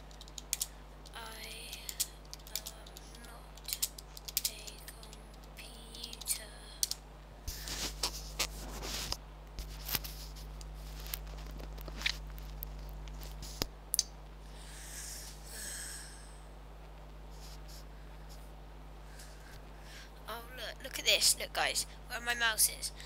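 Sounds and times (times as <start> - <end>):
low electrical hum: 0.0 - 23.0
soft hiss: 0.0 - 23.0
keyboard and mouse clicks: 0.1 - 7.0.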